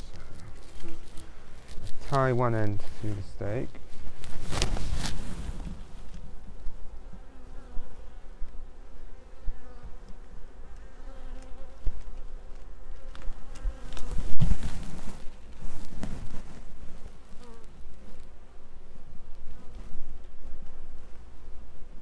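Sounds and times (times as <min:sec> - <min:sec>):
honeybees buzzing: 0:00.0 - 0:21.8.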